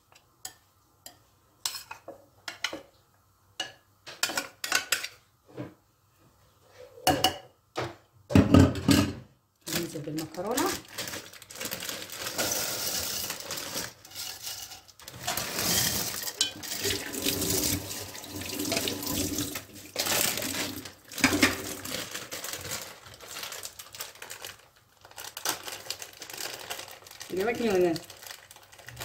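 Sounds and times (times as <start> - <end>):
plastic bag rustling: 9.7 - 29.0
wet pasta squelching: 10.8 - 24.7.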